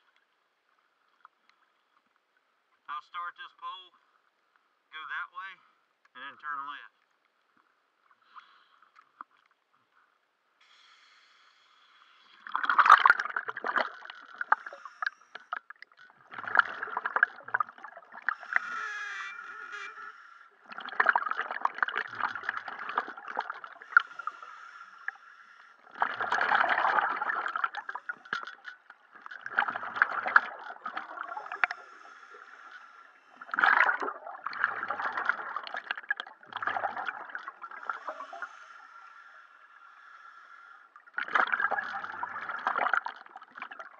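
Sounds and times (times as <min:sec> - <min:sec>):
scuba regulator breathing: 0:10.6 - 0:12.7, 0:14.4 - 0:15.5, 0:18.2 - 0:20.7, 0:23.7 - 0:26.0, 0:27.8 - 0:28.7, 0:31.2 - 0:33.6, 0:37.7 - 0:41.0
exhaled bubbles gurgling: 0:12.3 - 0:38.8, 0:40.9 - 0:43.9.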